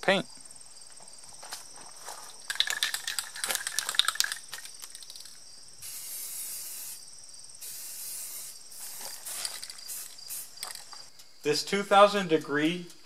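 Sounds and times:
aerosol can rattling: 2.3s - 6.8s, 8.1s - 11.1s
spray paint hissing: 2.5s - 11.1s.

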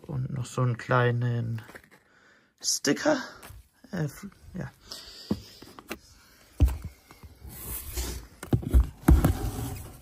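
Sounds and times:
cardboard boxes knocking and scraping: 7.6s - 10.0s.

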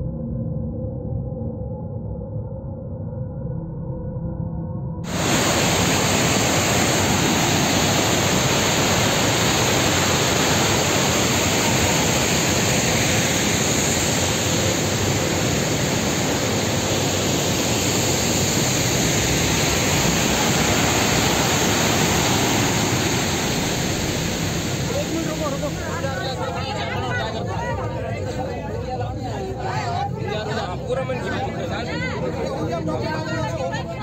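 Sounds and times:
water rushing over rocks: 5.1s - 27.0s.

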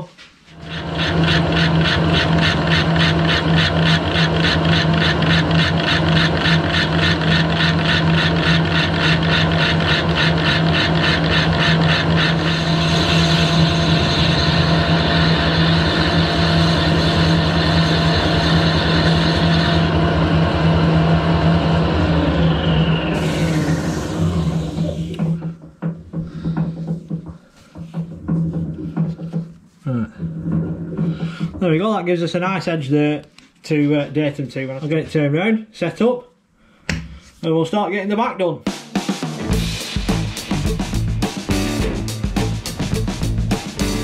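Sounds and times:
high cutting sound: 0.5s - 20.4s, 21.9s - 25.4s, 39.5s - 44.0s
metal lathe humming: 0.5s - 25.4s
fast regular ticking: 0.6s - 13.7s.

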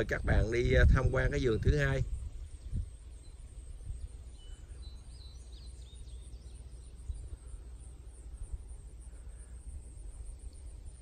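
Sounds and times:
wind rumble on microphone: 0.0s - 7.6s
high bird chirps: 2.4s - 7.7s.

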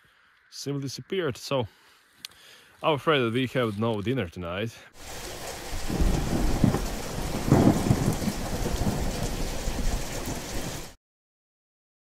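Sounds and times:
steady rain: 5.0s - 11.0s
thunder rumbling: 5.0s - 11.0s.

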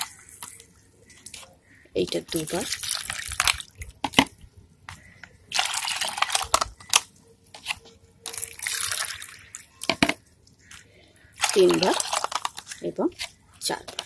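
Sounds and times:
water pouring and splashing: 0.0s - 4.2s, 5.5s - 6.6s, 8.2s - 14.0s
drips falling into plastic bowl: 8.3s - 12.8s.

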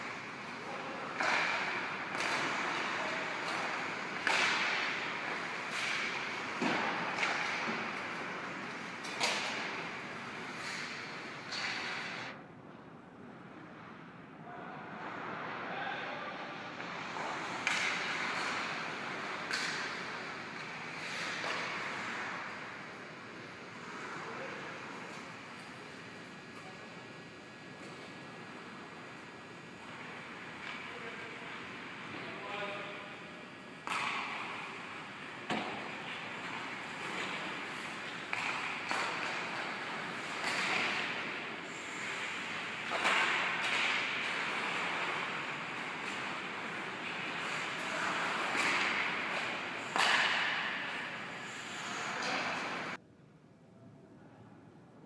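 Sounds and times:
puck cracks: 0.0s - 12.3s, 17.0s - 22.6s, 33.8s - 52.8s
skates scraping on ice: 0.0s - 12.3s, 16.8s - 25.7s, 35.4s - 53.0s.

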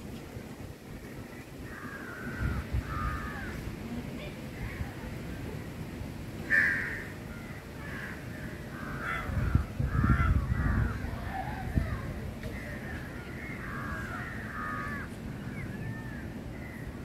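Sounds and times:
birds harsh calls: 1.2s - 3.7s, 6.4s - 17.0s.

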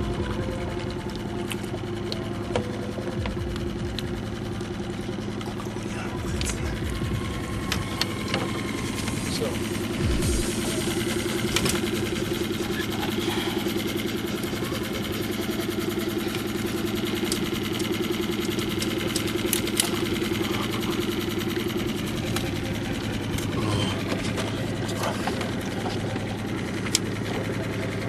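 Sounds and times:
outboard motor idling: 0.0s - 28.0s.

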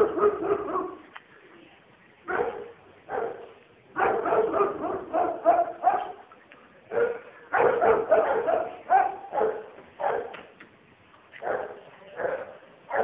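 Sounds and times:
dog barking: 0.0s - 1.0s, 2.3s - 6.2s, 6.9s - 10.4s, 11.4s - 13.0s.

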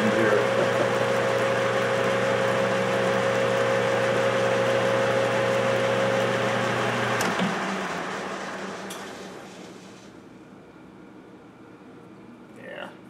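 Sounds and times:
metal lathe whining: 0.0s - 10.1s
lathe chuck coasting down: 5.2s - 10.1s.

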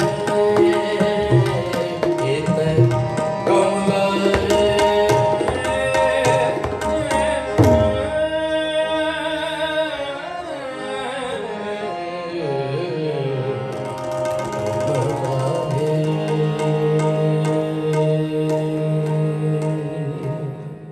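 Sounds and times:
tabla drumming: 0.0s - 9.0s, 13.7s - 20.9s
harmonium chords: 0.0s - 20.9s
person singing: 14.6s - 20.9s.

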